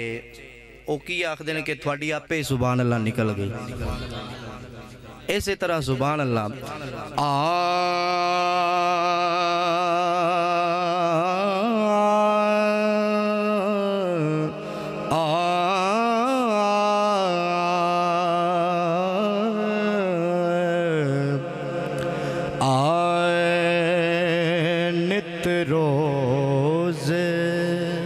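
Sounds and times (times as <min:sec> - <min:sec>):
man singing into a microphone: 0:00.0 - 0:28.0.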